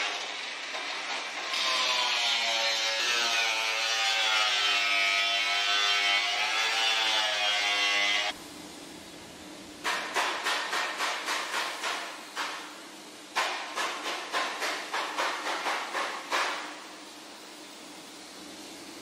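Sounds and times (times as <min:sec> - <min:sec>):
workshop noise hiss: 0:00.0 - 0:19.0
rapid hammer blows: 0:13.4 - 0:16.8.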